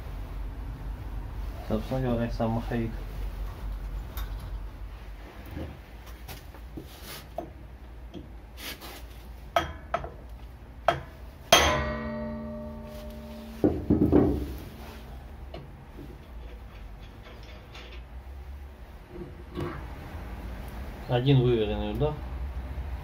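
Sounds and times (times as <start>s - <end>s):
hammer strike on metal drift: 10.9s - 15.0s
flywheel ringing: 11.6s - 13.7s.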